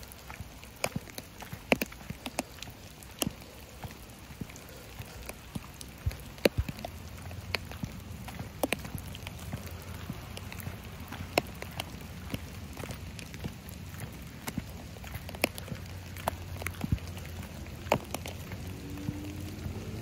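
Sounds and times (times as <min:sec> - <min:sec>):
light rain falling: 0:00.0 - 0:20.0.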